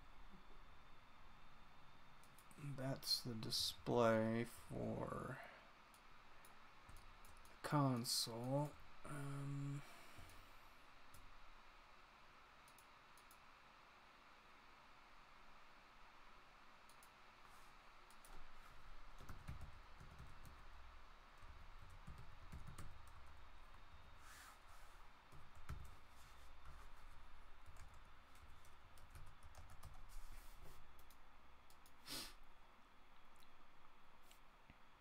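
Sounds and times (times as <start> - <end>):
keyboard typing: 19.2 - 20.7, 21.4 - 23.4, 25.3 - 26.0, 27.6 - 30.4.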